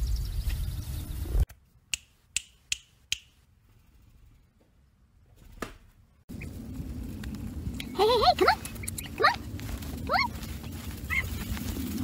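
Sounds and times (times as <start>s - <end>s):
rumbling outdoor noise: 5.9s - 12.0s.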